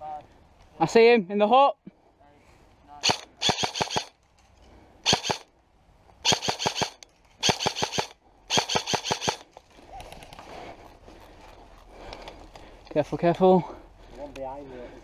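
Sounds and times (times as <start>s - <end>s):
airsoft rifle firing bursts: 3.0s - 4.2s, 5.0s - 5.5s, 6.2s - 9.5s.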